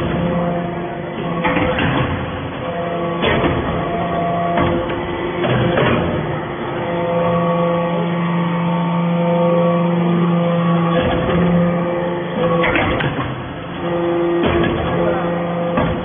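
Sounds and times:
press knocks: 0.0 - 7.4, 12.4 - 16.0
motor and pump hum: 0.0 - 16.0.

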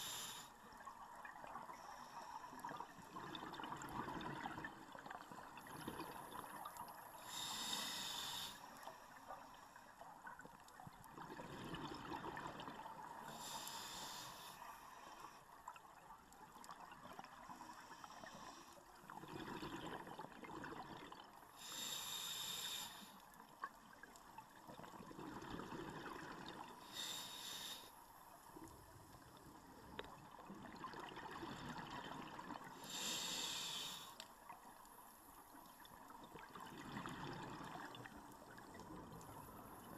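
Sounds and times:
regulator hissing inhalations: 0.0 - 0.6, 7.2 - 8.9, 13.2 - 15.3, 21.6 - 23.2, 26.8 - 28.0, 32.8 - 34.2.

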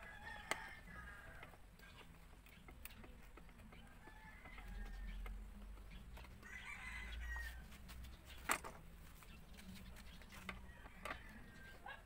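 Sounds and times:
rooster crowing faintly: 6.4 - 7.8.

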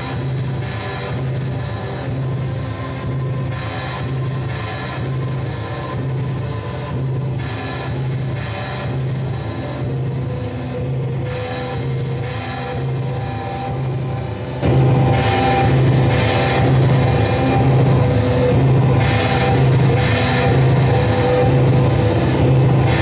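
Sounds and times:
droning guitar and synthesizer music: 0.0 - 23.0
pulsing bass note: 9.9 - 23.0.

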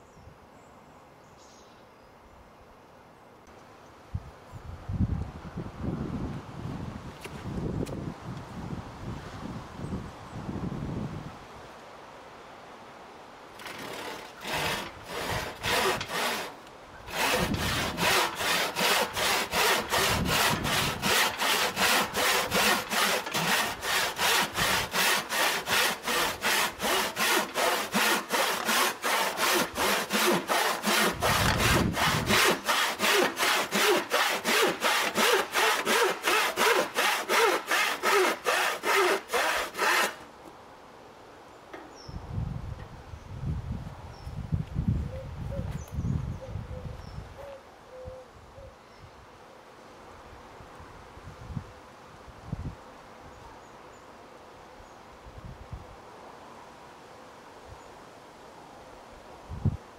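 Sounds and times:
hand saw cutting wood: 13.6 - 40.3.

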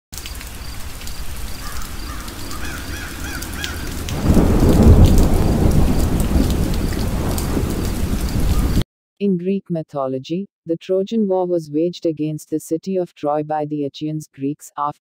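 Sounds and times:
rain falling: 0.2 - 8.8
crow cawing: 1.6 - 4.1
thunder rumbling: 2.0 - 8.8.

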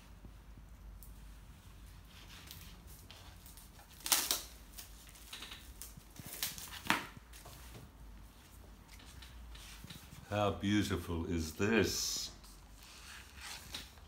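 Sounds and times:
plastic wrapping crinkling: 2.1 - 7.6.

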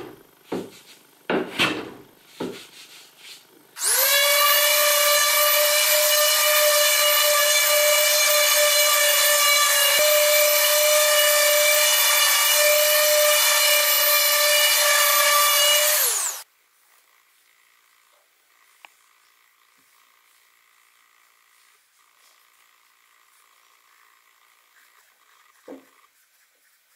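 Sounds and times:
sanding pad rubbing wood: 2.2 - 16.4
orbital sander whining: 3.8 - 16.5.

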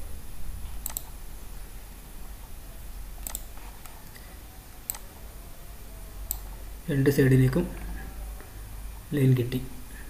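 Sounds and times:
faint low hum: 0.0 - 10.0
computer mouse clicking: 0.8 - 1.2, 3.2 - 4.2, 4.8 - 5.1.

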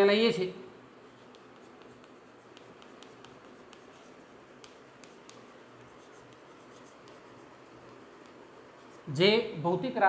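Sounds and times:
chalk scratching on chalkboard: 1.0 - 9.2
chalk ticks and taps: 1.1 - 9.1.

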